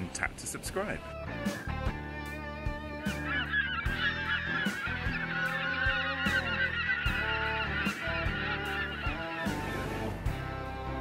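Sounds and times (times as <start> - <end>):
background music with beat: 1.1 - 11.0
geese honking: 2.8 - 10.3.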